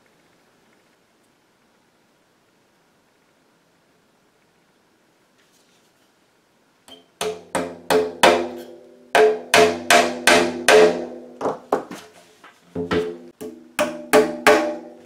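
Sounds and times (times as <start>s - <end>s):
hammer tapping tack into drum: 6.9s - 11.2s, 12.8s - 14.9s
drum ringing: 12.8s - 14.9s.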